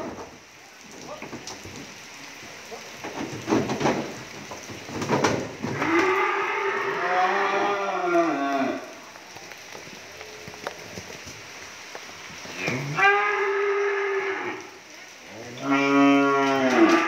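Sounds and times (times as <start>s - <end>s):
cow mooing: 5.7s - 8.9s, 12.6s - 14.7s, 15.4s - 17.0s.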